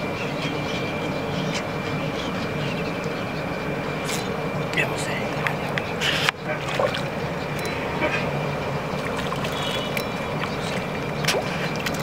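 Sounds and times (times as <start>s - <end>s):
low background hum: 0.0s - 12.0s
fish splashing in water: 6.5s - 7.2s, 8.9s - 12.0s.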